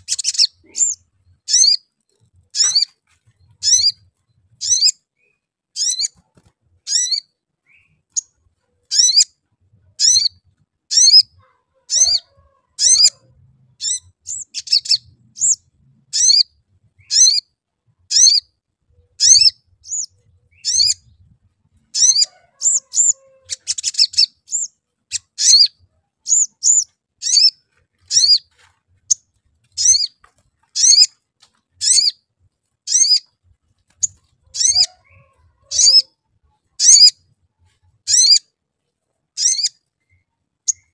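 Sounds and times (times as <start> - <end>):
bird chirping: 0.0 - 40.9.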